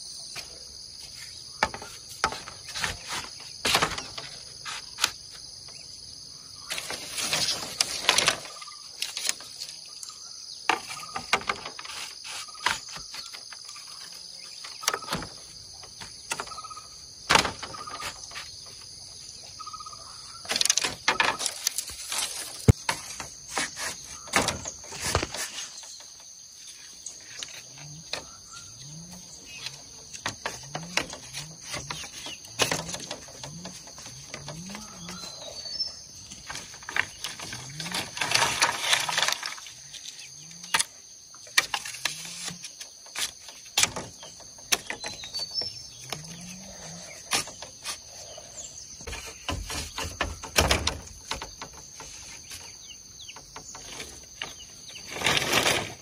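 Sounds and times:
insects droning: 0.0 - 56.0
bamboo poles clacking: 0.3 - 5.8, 6.6 - 56.0
bird chirps: 8.3 - 37.9, 43.4 - 55.4.

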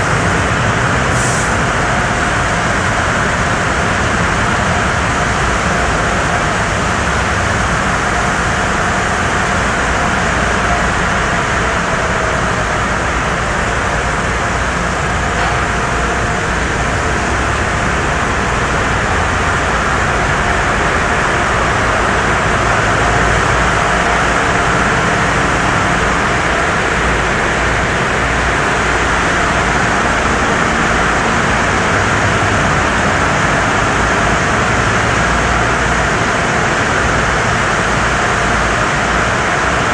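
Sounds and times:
water spraying: 0.0 - 1.8
pumps and motors rumbling: 0.0 - 39.9.

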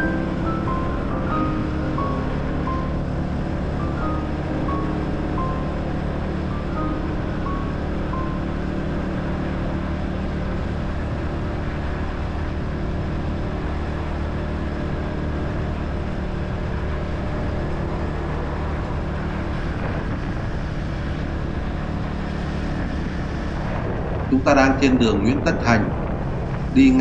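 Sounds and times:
motorcycle engine hum: 0.0 - 27.0
road and wind noise: 0.0 - 27.0.

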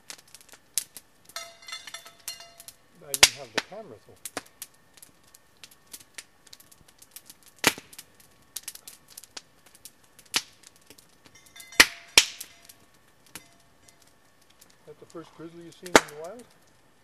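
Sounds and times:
campfire crackling: 0.0 - 17.0
sharp pops of burning wood: 0.0 - 17.0.

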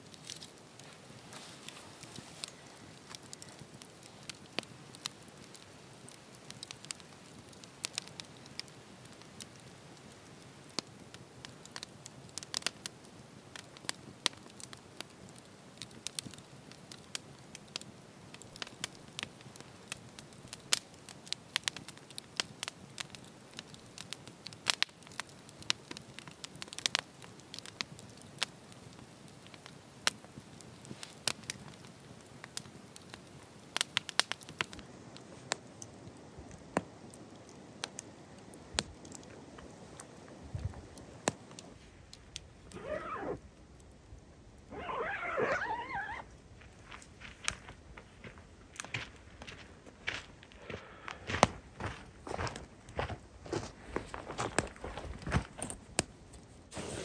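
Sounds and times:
campfire crackling and popping: 0.0 - 57.0
faint hiss: 28.4 - 48.6, 56.4 - 57.0.

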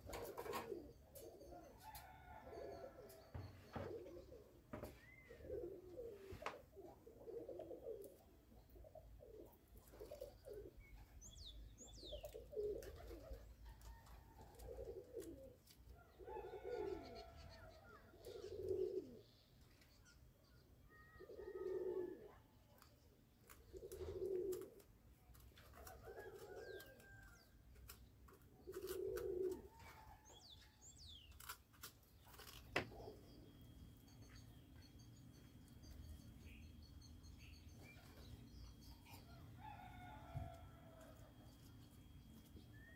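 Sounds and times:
dove cooing: 0.0 - 19.4, 20.9 - 30.6, 32.3 - 33.7, 37.8 - 42.9.

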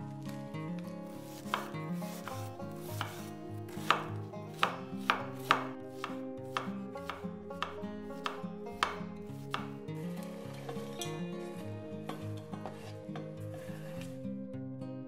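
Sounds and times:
knife chopping on wooden board: 1.2 - 10.8.

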